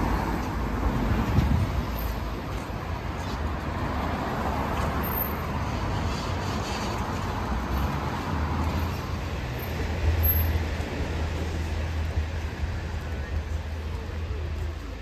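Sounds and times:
low rumble of traffic: 0.0s - 15.0s
car tyres hissing on wet road: 5.6s - 9.0s.

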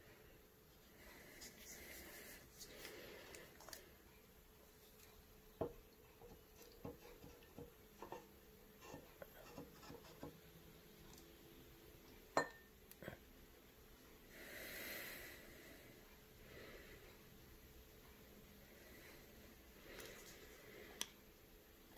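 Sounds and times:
syringe tapping drinking glass: 12.4s - 12.6s.

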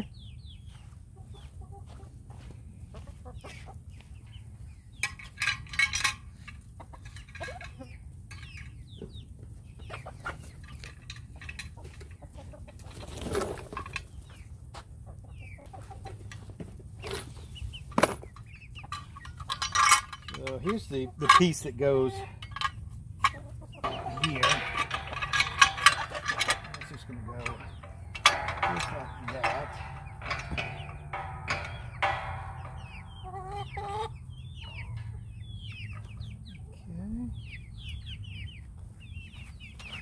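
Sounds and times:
chickens clucking: 0.0s - 40.0s
sharp clicks and knocks: 22.4s - 34.0s.

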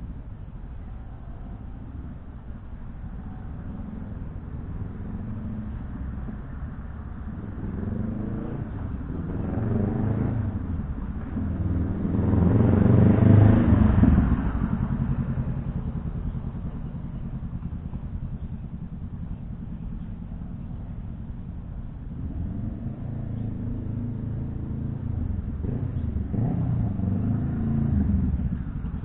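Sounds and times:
motorcycle accelerating past: 7.2s - 16.4s, 22.2s - 29.0s.

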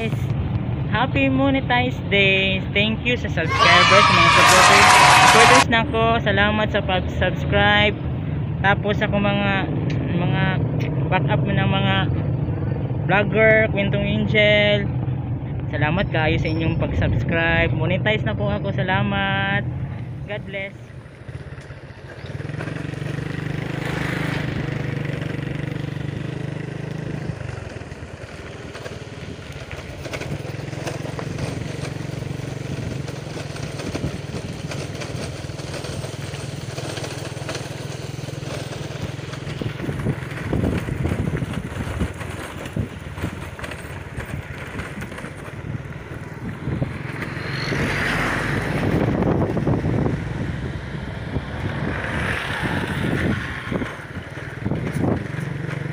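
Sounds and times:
motorcycle engine running: 0.0s - 6.2s, 7.0s - 16.2s, 16.8s - 55.9s
wind buffeting microphone: 16.8s - 37.7s, 38.4s - 55.9s.

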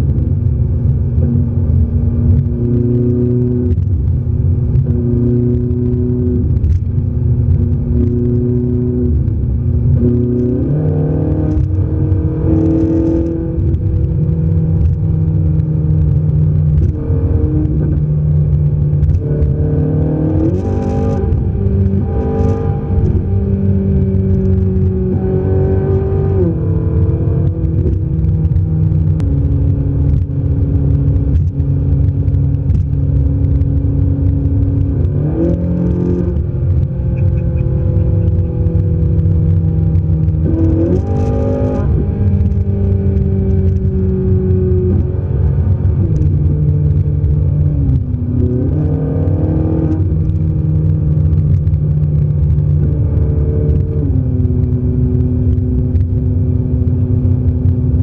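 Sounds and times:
car engine accelerating: 0.0s - 58.0s
road noise: 0.0s - 58.0s.

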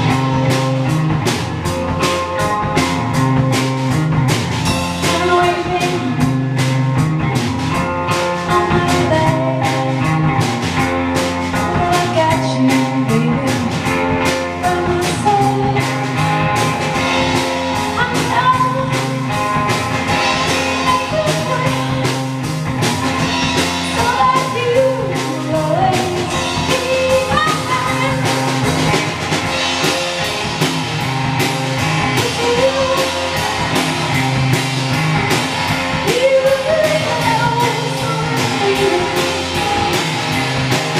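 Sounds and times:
drum kit: 0.0s - 40.9s
electric guitar: 0.0s - 40.9s
woman singing: 5.0s - 6.4s, 8.3s - 10.3s, 11.5s - 16.3s, 17.9s - 19.4s, 20.5s - 22.4s, 23.8s - 28.7s, 32.1s - 33.5s, 36.0s - 40.0s.

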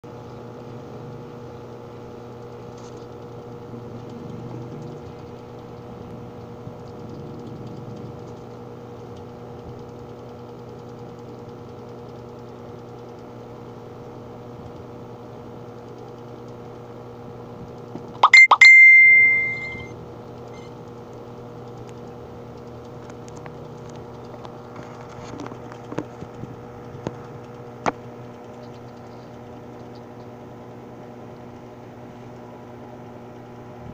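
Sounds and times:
low hum: 18.2s - 19.9s
bell-like ring: 18.3s - 19.9s.

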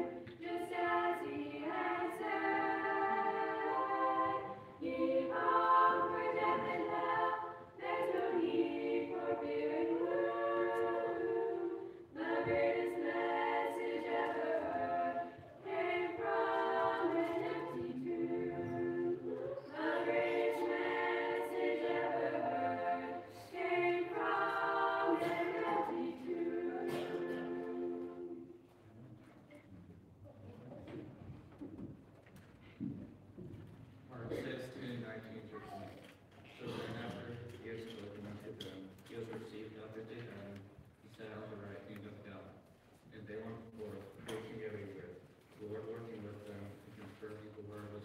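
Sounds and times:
children's choir singing a cappella: 0.0s - 28.8s.

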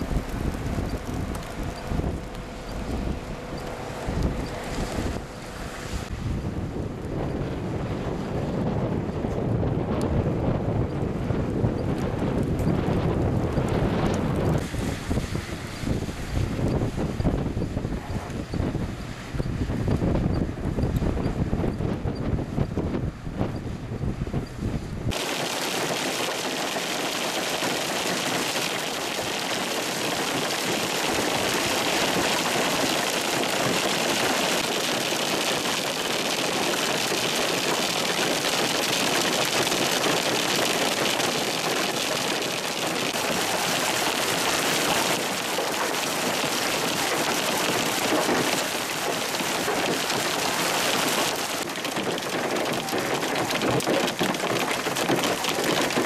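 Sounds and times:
hail pattering on ground: 0.0s - 2.5s, 25.1s - 56.0s.

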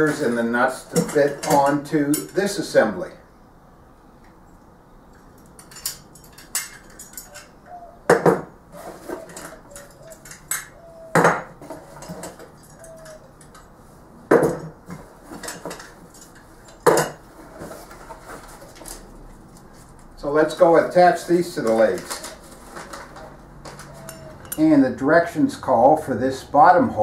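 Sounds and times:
metal clinks and rattles: 5.1s - 7.7s, 9.2s - 10.8s, 15.2s - 17.2s, 21.6s - 24.7s.

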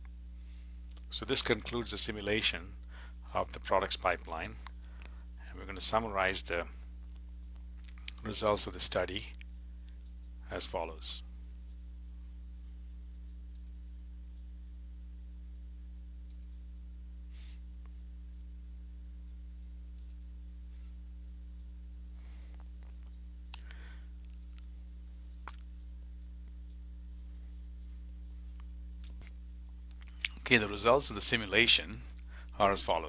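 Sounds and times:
electrical hum and hiss: 0.0s - 33.0s
soft clicks: 12.5s - 14.5s, 15.5s - 16.9s, 17.7s - 30.5s.

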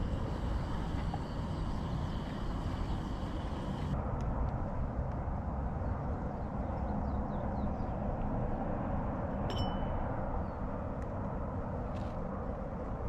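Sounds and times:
gas stove roaring: 0.0s - 4.0s
metal clink: 9.5s - 10.0s.

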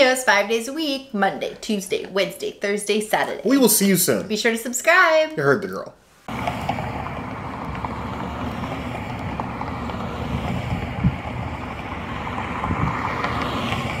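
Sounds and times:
steady rushing noise: 6.2s - 14.0s.

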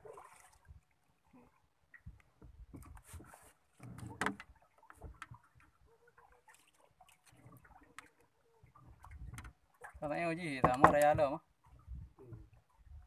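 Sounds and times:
fishing tackle knocking and rubbing: 10.6s - 11.2s.

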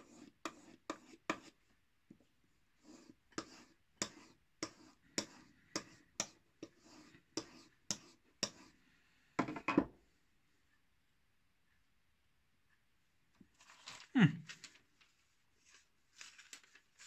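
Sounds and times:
knife stropping strokes: 2.8s - 8.7s.

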